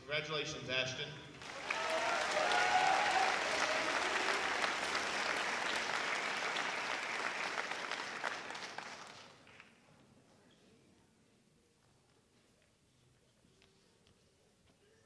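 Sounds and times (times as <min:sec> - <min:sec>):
audience applauding: 0:01.4 - 0:09.8.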